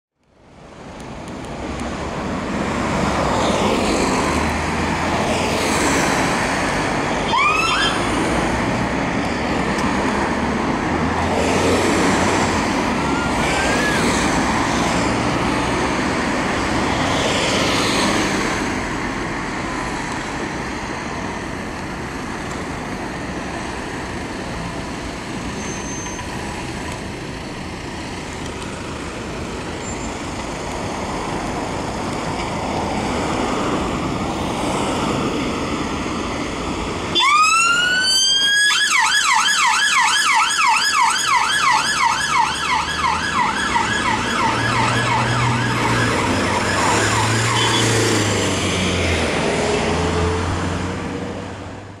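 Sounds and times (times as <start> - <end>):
road traffic noise: 0.2 - 52.0
ambulance siren wailing and yelping: 7.1 - 8.3, 12.8 - 14.9, 37.1 - 48.2.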